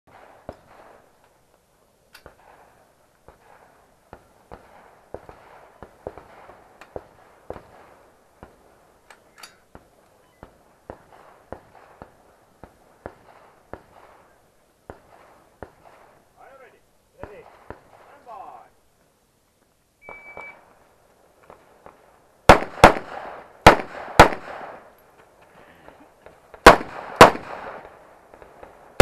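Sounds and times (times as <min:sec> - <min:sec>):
rifle shots: 0:00.1 - 0:01.1, 0:02.2 - 0:08.6, 0:10.5 - 0:16.6, 0:17.2 - 0:18.6, 0:21.5 - 0:24.9, 0:26.6 - 0:29.0.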